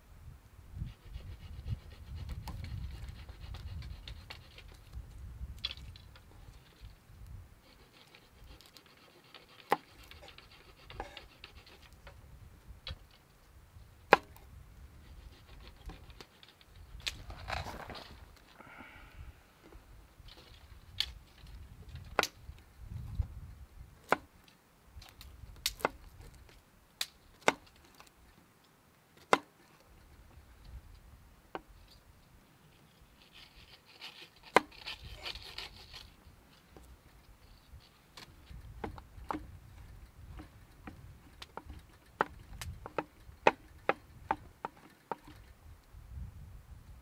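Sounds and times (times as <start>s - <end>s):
short rustling: 17.2s - 20.7s.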